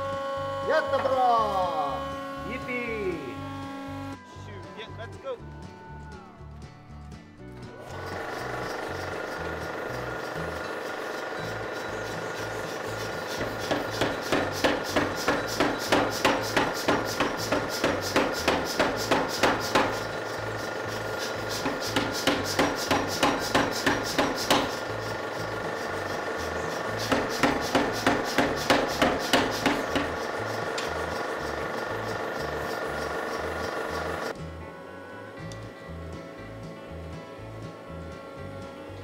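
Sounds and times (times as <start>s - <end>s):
power hammer striking hot steel: 7.9s - 34.4s.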